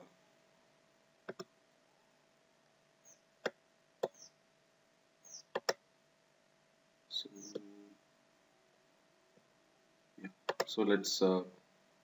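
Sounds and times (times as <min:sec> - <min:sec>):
faint steady hum: 0:00.0 - 0:12.0
computer mouse clicking: 0:01.3 - 0:01.5, 0:03.4 - 0:04.3, 0:05.3 - 0:05.8, 0:10.4 - 0:10.7.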